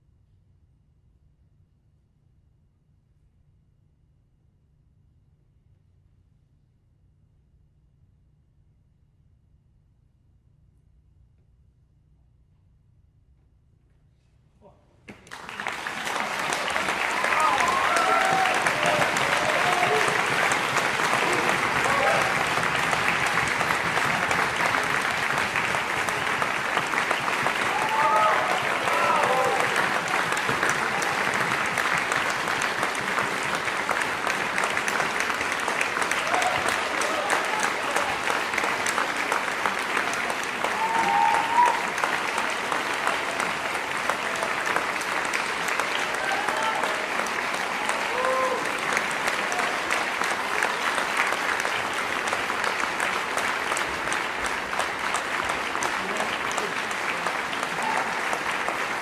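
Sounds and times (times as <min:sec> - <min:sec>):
audience applauding: 0:15.1 - 0:59.0.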